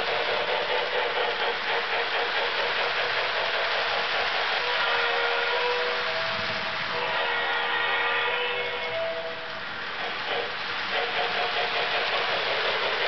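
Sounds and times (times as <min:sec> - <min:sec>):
model train whirring and clattering: 0:00.0 - 0:13.0.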